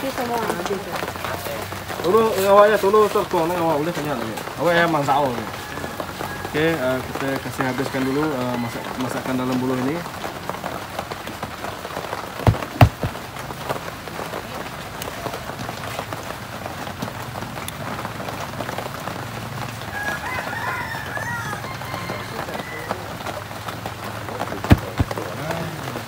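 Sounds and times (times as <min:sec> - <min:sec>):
rain on a roof: 0:00.0 - 0:26.0
sharp knocks: 0:12.4 - 0:13.2, 0:24.7 - 0:25.2.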